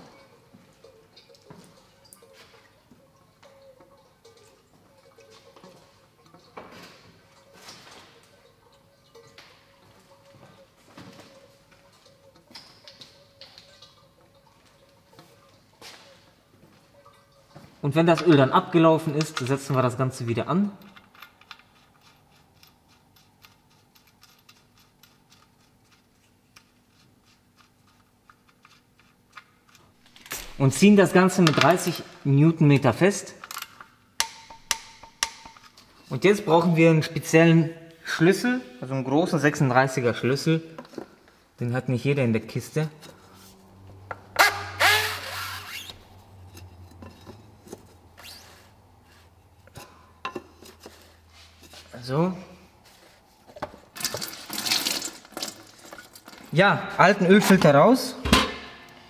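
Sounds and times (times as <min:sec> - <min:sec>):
filter cap squeaking: 0:44.2 - 0:49.2.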